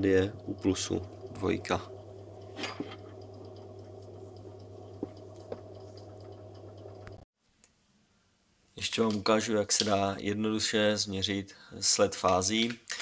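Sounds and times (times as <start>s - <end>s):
low electrical hum: 0.0s - 7.2s.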